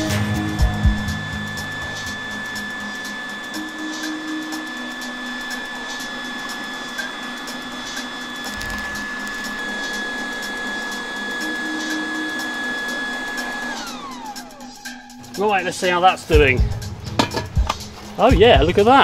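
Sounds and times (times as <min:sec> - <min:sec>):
burning charcoal crackling: 0:00.0 - 0:12.4
electric air pump whining: 0:00.0 - 0:19.0.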